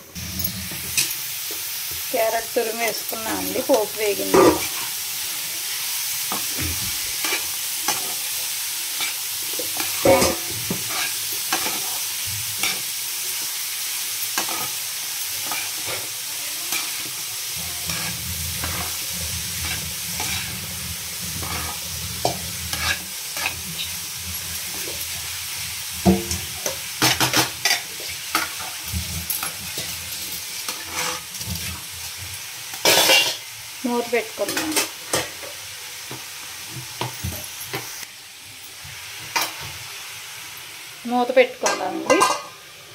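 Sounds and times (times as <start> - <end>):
carrot sizzling in hot oil: 0.0 - 42.9
spatula scraping pan: 2.6 - 5.0, 8.9 - 25.2, 26.0 - 32.2.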